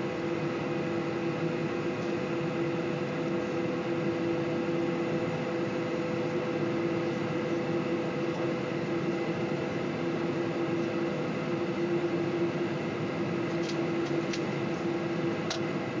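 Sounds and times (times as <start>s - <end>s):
jet engines idling hum: 0.0s - 16.0s.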